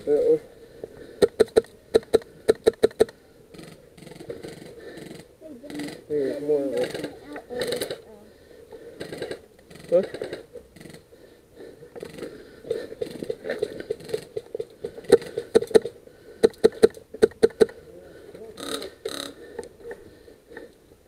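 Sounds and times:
airsoft rifle shots: 0:01.2 - 0:06.0.

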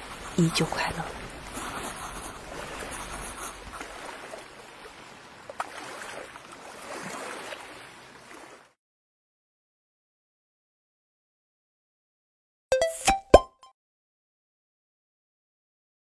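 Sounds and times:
waves washing onto sand: 0:00.0 - 0:08.7.

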